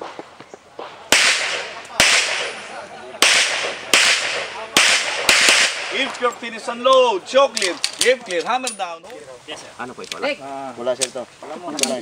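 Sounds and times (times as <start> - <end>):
handgun shots with echo: 1.1 - 2.6, 3.2 - 6.2.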